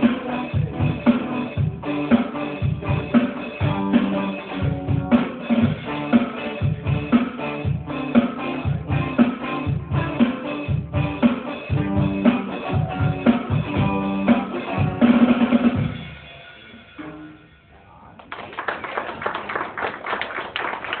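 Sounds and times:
live band with electric guitar and drums: 0.0 - 17.6
people clapping: 18.1 - 21.0.

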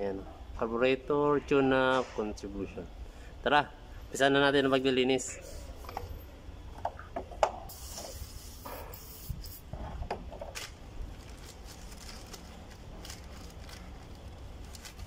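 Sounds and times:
aerosol spray hissing: 7.7 - 9.7.

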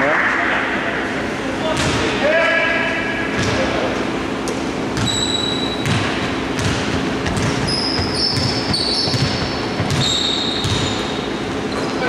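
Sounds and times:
sneaker squeaks on floor: 5.0 - 12.0
basketball bouncing on hardwood: 5.8 - 11.0.

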